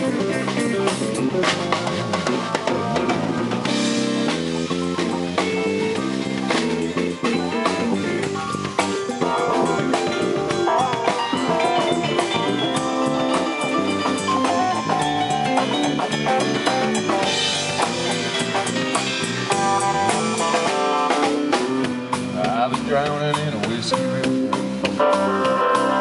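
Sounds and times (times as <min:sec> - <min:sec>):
bass guitar: 0:00.0 - 0:26.0
drum kit with cymbals: 0:00.0 - 0:26.0
electric guitar: 0:00.0 - 0:26.0.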